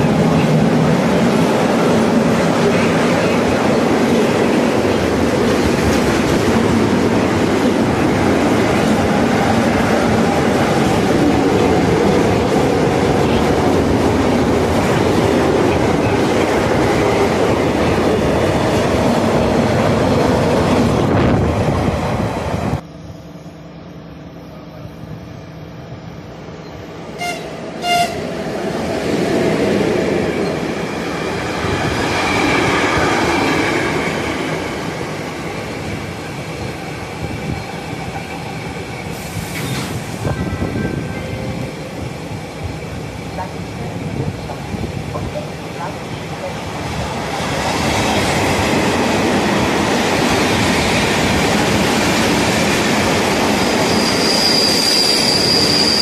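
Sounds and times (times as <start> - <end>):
train horn toots: 27.2 - 28.3
wheel squeal: 53.6 - 56.0.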